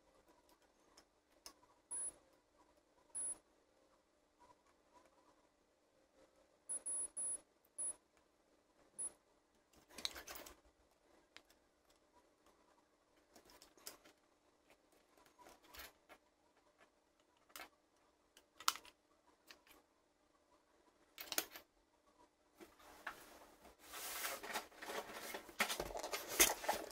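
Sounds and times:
short high beeps: 3.2 - 3.4, 6.7 - 8.0.

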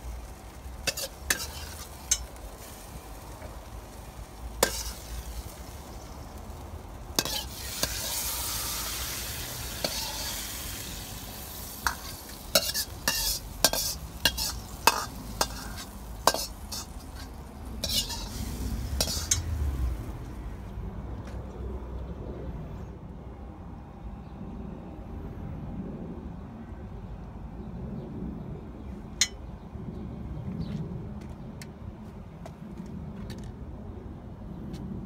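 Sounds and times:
food sizzling: 0.0 - 20.5
metal ladle scraping wok: 0.8 - 3.5, 4.6 - 5.9, 7.2 - 19.6.

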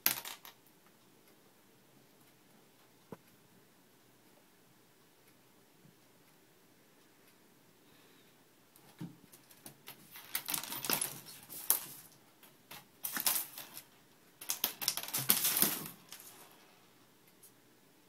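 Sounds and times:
small objects rattling in a drawer: 9.9 - 16.5.

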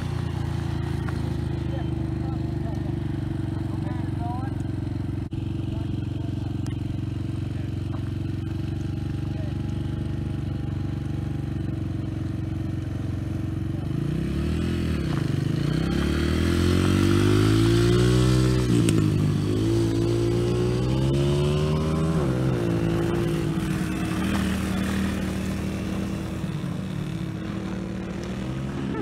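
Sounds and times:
dirt bike accelerating: 0.0 - 29.0
dirt bike engine idling: 0.0 - 29.0.

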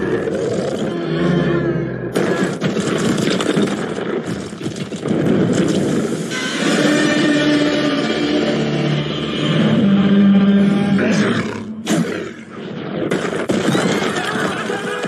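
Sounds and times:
dramatic music with held notes: 0.8 - 2.2, 6.3 - 13.0
crashing rumbling effects: 2.1 - 7.4.

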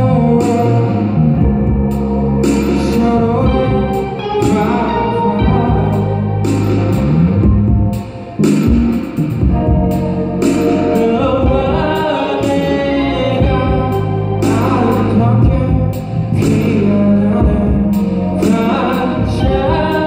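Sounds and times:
man singing: 0.0 - 1.7, 2.7 - 6.5, 10.6 - 20.0
electric guitars: 0.0 - 20.0
sharp rhythmic hits: 2.4 - 17.8.

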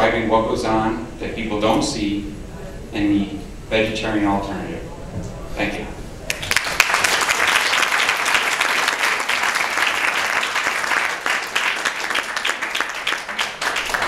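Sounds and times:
audience applauding: 6.3 - 14.0.

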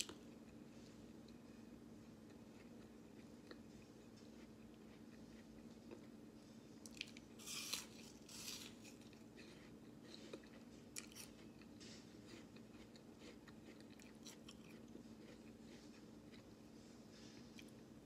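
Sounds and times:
apple being bitten and chewed: 6.8 - 16.6.

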